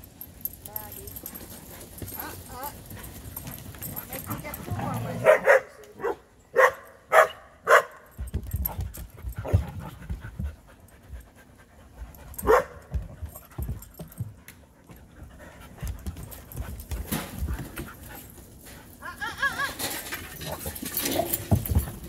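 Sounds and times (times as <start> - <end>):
dog panting: 0.2 - 5.2, 8.6 - 18.4
dog barking: 5.2 - 8.0, 12.4 - 12.8.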